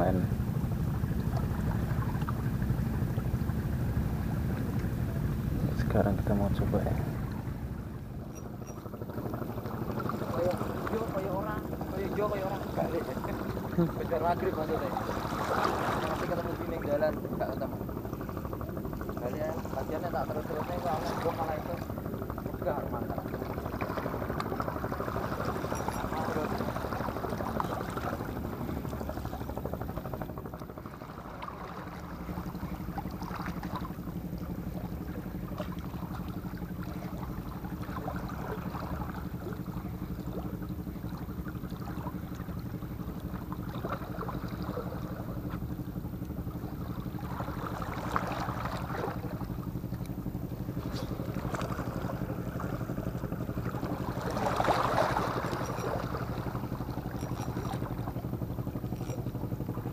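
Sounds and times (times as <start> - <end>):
boat engine drone: 0.0 - 59.9
water noise: 0.0 - 59.9.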